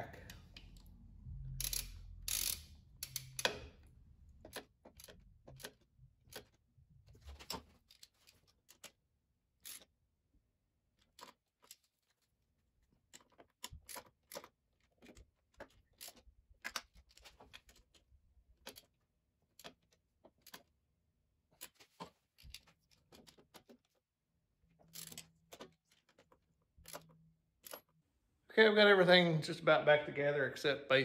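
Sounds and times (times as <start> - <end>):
ratchet wrench clicking: 1.4 - 3.9, 9.6 - 9.9, 24.9 - 25.2.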